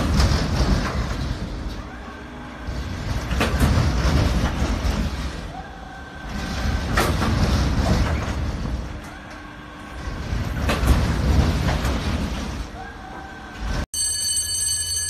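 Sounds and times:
amusement ride turntable rumbling: 0:00.0 - 0:13.9
ride clacking: 0:02.7 - 0:05.3.

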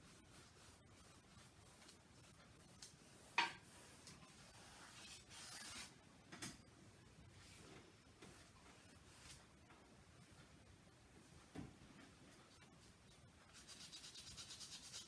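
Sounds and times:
paintbrush rubbing on canvas: 0:00.0 - 0:05.9.

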